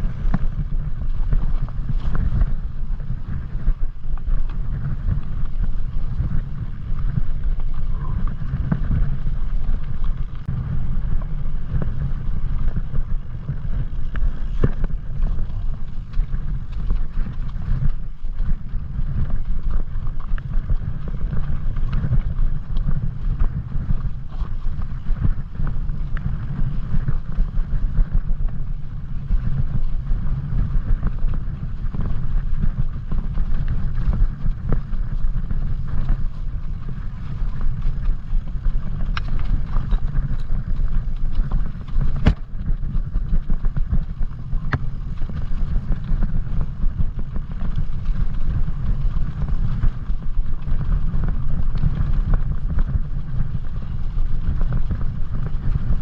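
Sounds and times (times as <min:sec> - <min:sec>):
bike rolling noise: 0:00.0 - 0:56.0
wind buffeting microphone: 0:00.0 - 0:56.0
bike knocking on rocks: 0:39.0 - 0:43.1.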